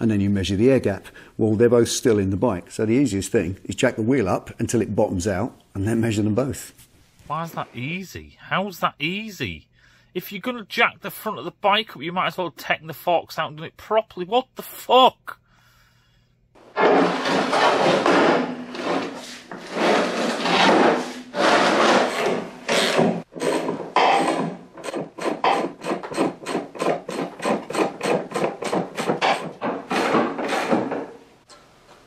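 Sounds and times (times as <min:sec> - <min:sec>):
scraping strokes on hard surface: 0:16.6 - 0:24.4.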